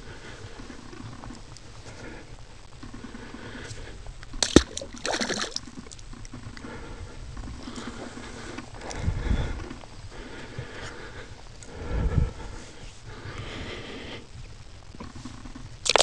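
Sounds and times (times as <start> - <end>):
muddy water splashing: 4.4 - 5.8.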